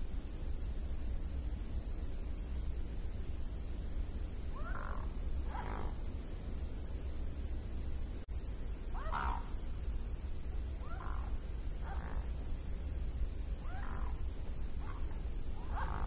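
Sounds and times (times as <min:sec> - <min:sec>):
swan calling: 0:08.9 - 0:09.6, 0:10.8 - 0:12.4, 0:13.6 - 0:16.0.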